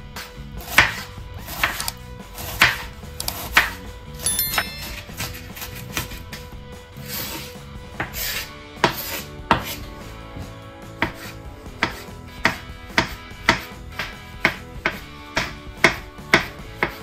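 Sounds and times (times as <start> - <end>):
knife chopping on cutting board: 0.6 - 3.8, 7.4 - 9.8, 11.0 - 17.0.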